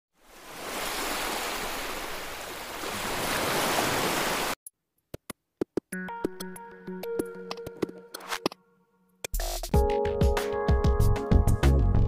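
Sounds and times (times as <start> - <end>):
ocean waves over rocks: 0.2 - 4.6.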